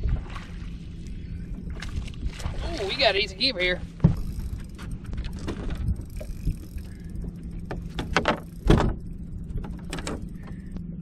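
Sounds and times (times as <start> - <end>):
steady low hum: 0.0 - 11.0
knocks and thumps on boat deck: 4.0 - 4.3, 7.7 - 9.0.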